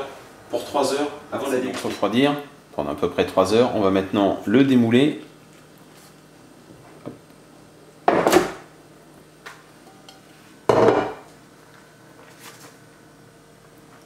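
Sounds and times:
glass dish knocking on cutting board: 10.7s - 11.2s.

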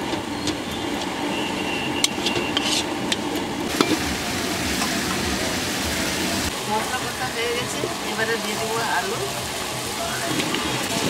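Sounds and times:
spatula scraping metal pan: 2.0s - 3.0s
masala sizzling in oil: 3.7s - 11.0s.

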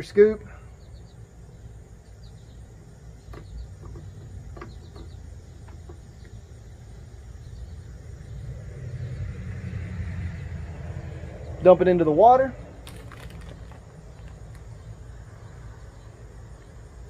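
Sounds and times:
scoop and bag clicks: 12.8s - 14.6s.

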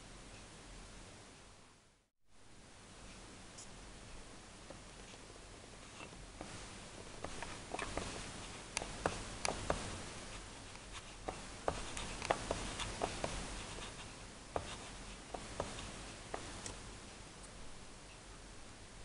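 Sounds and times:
scratchy rubbing: 5.8s - 16.8s.

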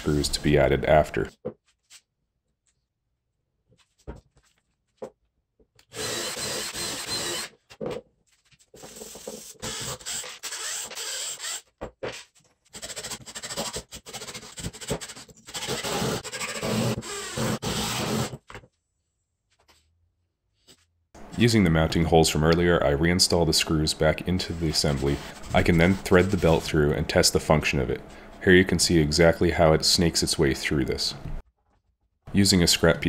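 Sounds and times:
power drill drilling into wood: 5.9s - 7.5s.

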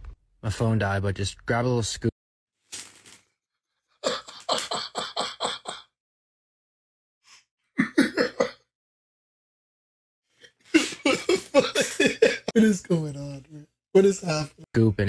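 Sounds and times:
man laughing: 4.0s - 5.8s, 7.8s - 8.6s, 10.7s - 13.0s.

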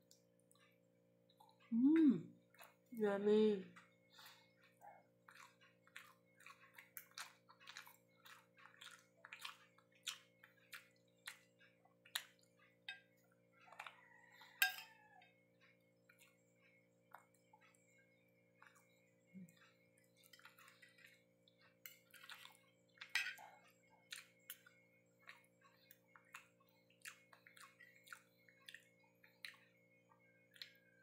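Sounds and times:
close-up chewing: 0.0s - 3.0s, 3.7s - 31.0s
faint steady hum: 0.0s - 31.0s
cutlery scraping on a plate: 14.6s - 14.9s, 23.0s - 23.5s.

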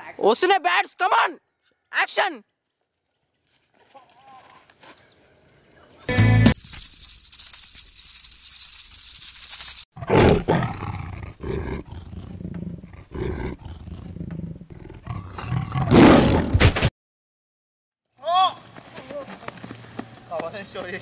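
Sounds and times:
tiger growling and roaring: 10.0s - 16.6s.

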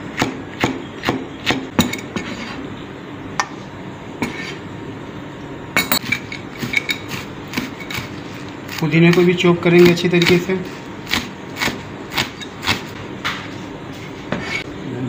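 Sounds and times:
knife chopping on cutting board: 0.1s - 2.6s, 6.6s - 13.5s.

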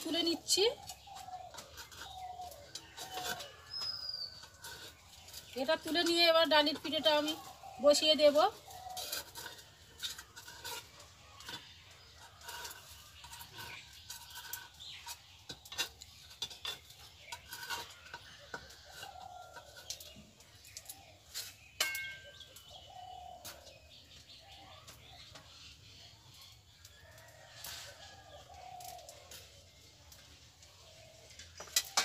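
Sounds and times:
metal spatula scraping pan: 0.0s - 23.8s
birds calling: 0.0s - 27.4s
chickens clucking: 0.0s - 32.0s.

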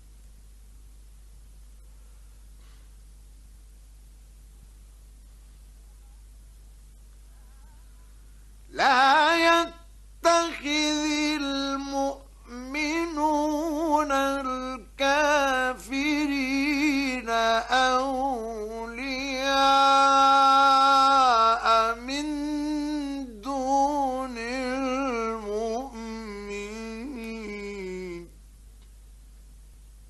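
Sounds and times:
man chanting melodically: 8.7s - 28.4s.

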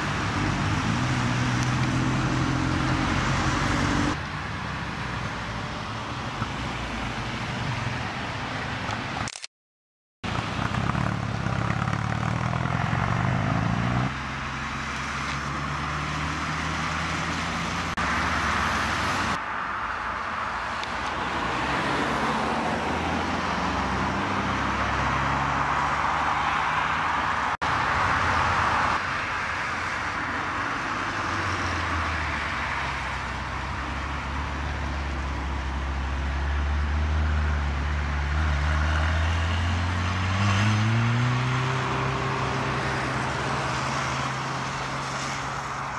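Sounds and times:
sports cars driving past: 10.3s - 45.9s.

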